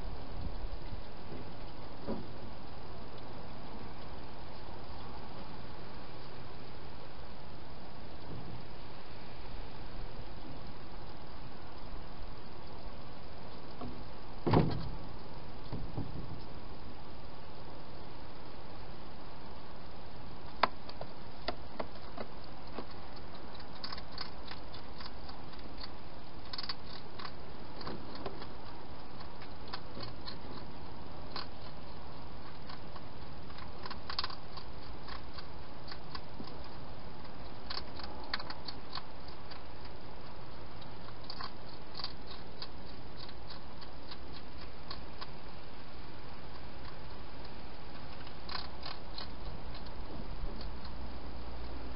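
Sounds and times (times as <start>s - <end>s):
steady hiss: 0.0s - 51.9s
hedgehog crunching food: 20.2s - 51.9s.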